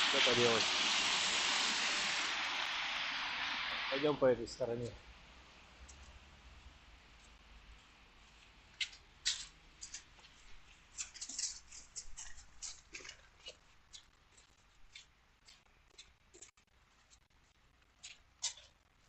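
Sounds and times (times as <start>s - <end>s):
footsteps crunching on frozen ground: 7.2s - 18.7s.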